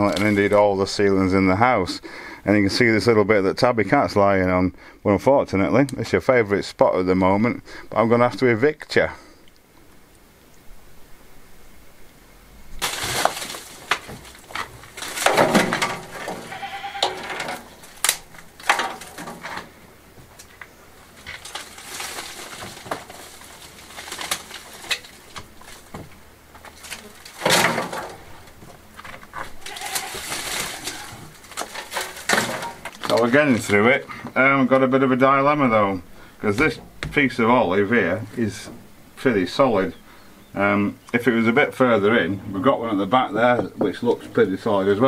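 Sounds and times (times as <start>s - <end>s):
rubble clattering into metal wheelbarrow: 12.8s - 34.0s.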